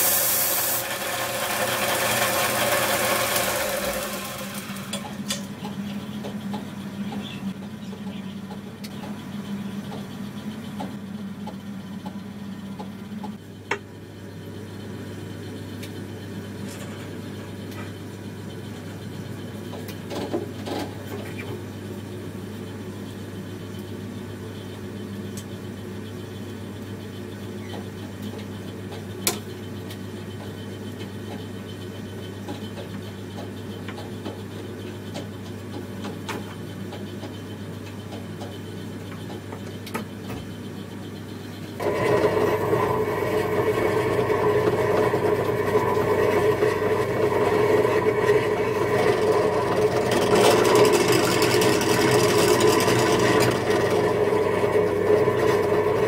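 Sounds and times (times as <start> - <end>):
belt sander humming: 0.0 - 5.2, 41.8 - 56.0.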